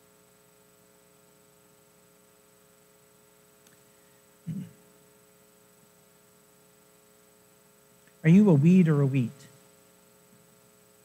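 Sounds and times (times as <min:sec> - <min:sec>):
electrical mains hum: 0:00.0 - 0:11.0
man's voice murmuring: 0:04.5 - 0:04.8, 0:08.3 - 0:09.4.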